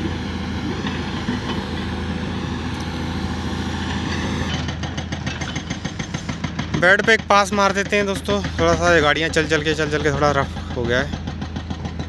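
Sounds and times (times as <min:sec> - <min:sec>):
road roller diesel engine droning: 0:00.0 - 0:12.0.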